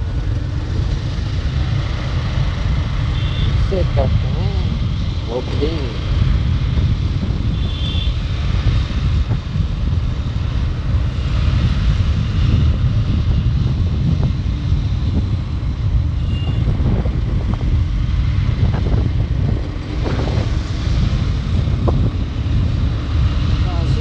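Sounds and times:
motorcycle engine and road rumble: 0:00.0 - 0:24.0
wind rushing over microphone: 0:00.0 - 0:24.0.

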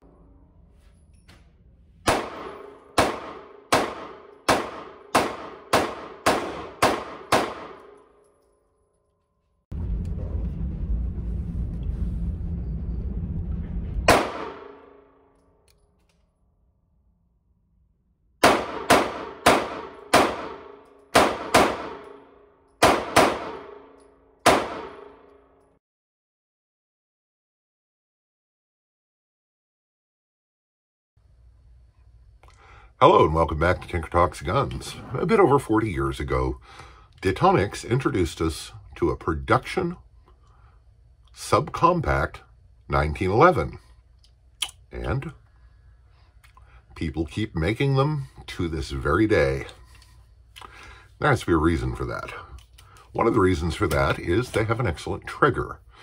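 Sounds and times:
pistol shots echoing indoors: 0:02.0 - 0:08.4, 0:14.1 - 0:15.8, 0:18.4 - 0:25.7
low rumble: 0:09.7 - 0:15.8.

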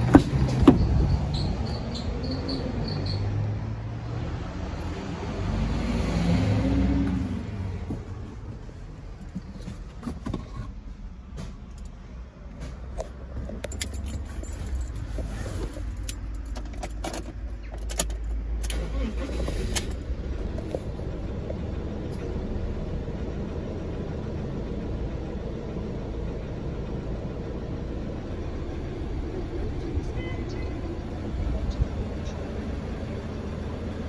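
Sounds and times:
diesel engine idling: 0:00.0 - 0:10.0, 0:10.7 - 0:34.0
keys jangling: 0:13.3 - 0:18.4.

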